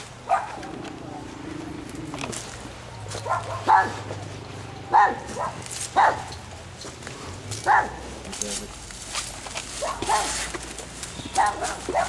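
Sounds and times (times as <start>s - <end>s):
small dog barking: 0.3s - 0.7s, 3.2s - 4.1s, 4.9s - 6.3s, 7.6s - 8.0s, 9.8s - 10.4s, 11.3s - 12.0s.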